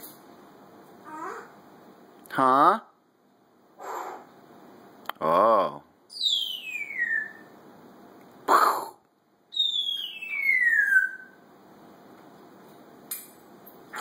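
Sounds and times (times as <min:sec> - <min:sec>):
parrot harsh sound: 0:01.0 - 0:01.6, 0:03.8 - 0:04.3
parrot whistling falling notes: 0:06.2 - 0:07.5, 0:09.5 - 0:11.4.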